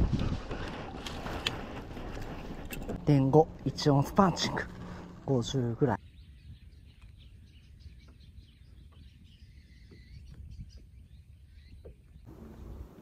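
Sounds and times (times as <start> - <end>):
steady low rumble: 0.0 - 6.7
small birds chirping: 3.8 - 13.0.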